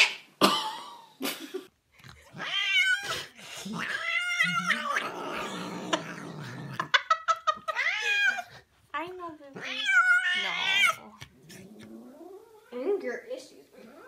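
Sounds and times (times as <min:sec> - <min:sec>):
cat yowling: 0:02.3 - 0:05.5, 0:07.6 - 0:08.5, 0:09.6 - 0:11.1.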